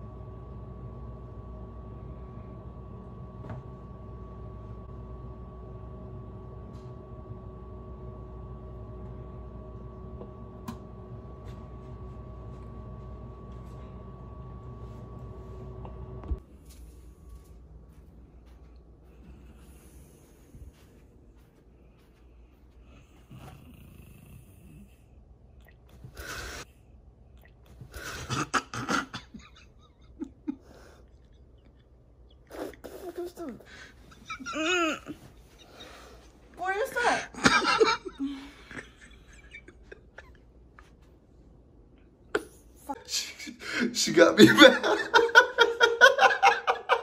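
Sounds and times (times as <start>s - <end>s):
low hum: 0.0s - 23.7s
man snoring: 23.3s - 24.9s.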